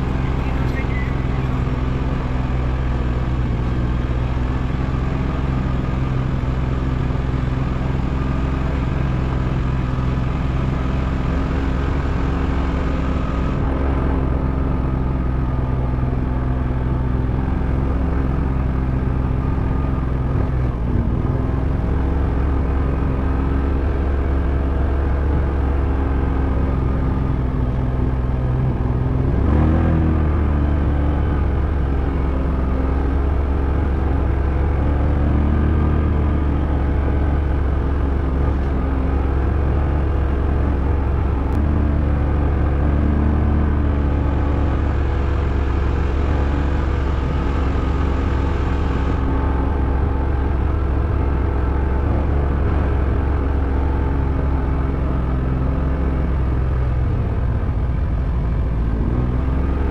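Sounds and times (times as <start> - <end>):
vehicle engine running: 0.0 - 59.9.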